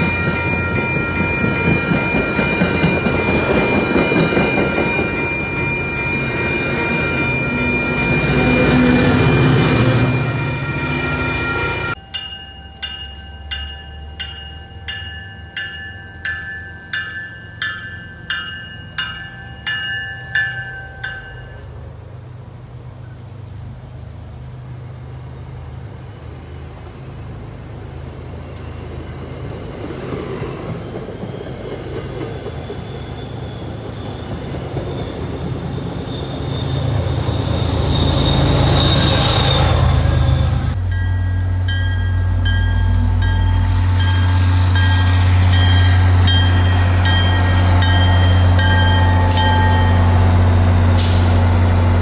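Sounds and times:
warning bell ringing: 0:00.0 - 0:21.7, 0:40.7 - 0:50.4
diesel locomotive: 0:00.0 - 0:52.0
train coaches rumbling past: 0:00.0 - 0:52.0.

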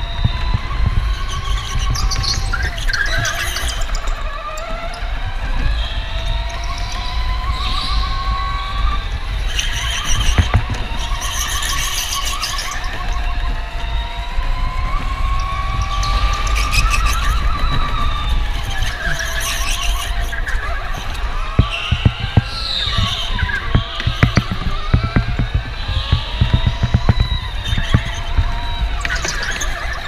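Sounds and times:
electric motor whining: 0:00.0 - 0:30.0
heavy steady rumble: 0:17.9 - 0:30.0
tyres squealing: 0:18.6 - 0:30.0.

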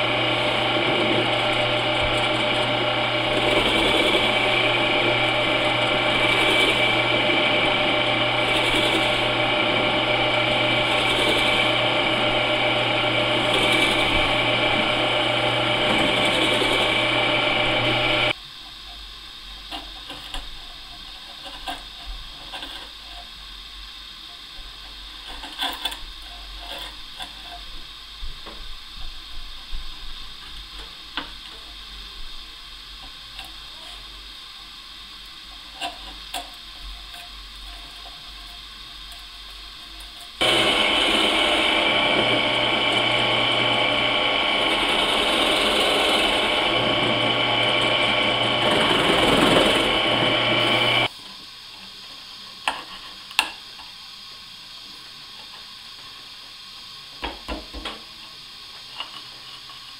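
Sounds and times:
trim router whining: 0:00.0 - 0:18.4, 0:40.3 - 0:51.1.

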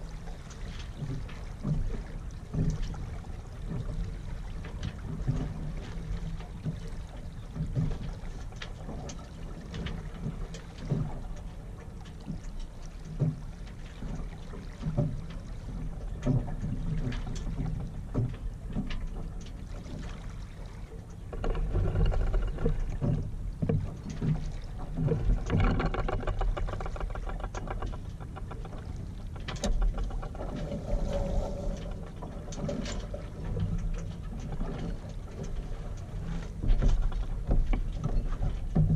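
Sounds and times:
knocks and clicks from boat: 0:00.0 - 0:38.9
water lapping against hull: 0:00.0 - 0:38.9
low rumble: 0:20.2 - 0:36.1.

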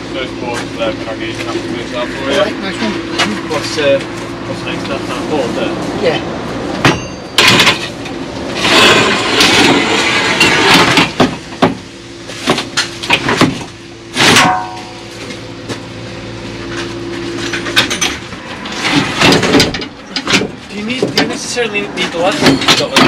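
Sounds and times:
metal clang: 0:06.8 - 0:08.0, 0:14.2 - 0:15.0
tools and boards clattering: 0:06.8 - 0:15.0, 0:16.7 - 0:23.0.

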